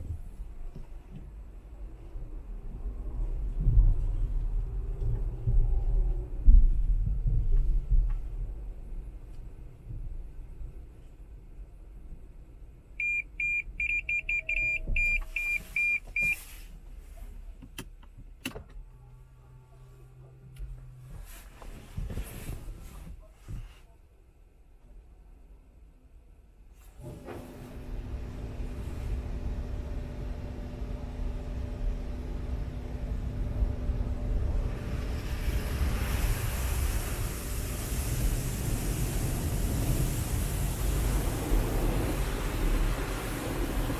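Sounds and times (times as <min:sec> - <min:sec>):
car wash machine rumble: 0:27.0 - 0:43.9
water jets spraying windshield: 0:34.2 - 0:43.9.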